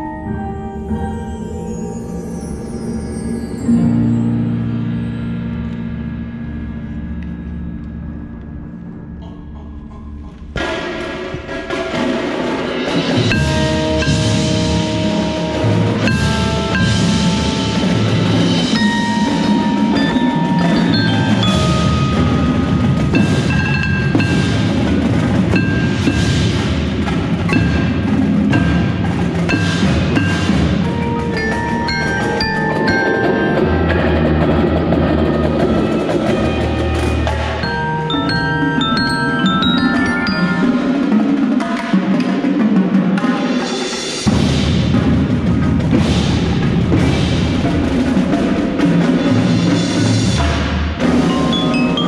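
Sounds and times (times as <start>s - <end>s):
xylophone and glockenspiel notes: 0.0s - 4.7s, 13.2s - 35.0s, 37.4s - 41.8s, 51.1s - 52.0s
marching drums: 10.5s - 52.0s
low held tones: 13.3s - 41.4s.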